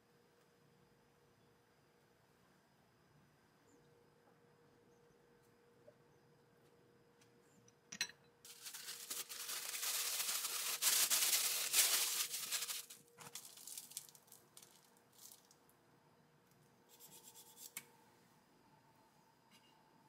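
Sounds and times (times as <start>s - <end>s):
plastic wrap crinkling: 8.5s - 15.7s.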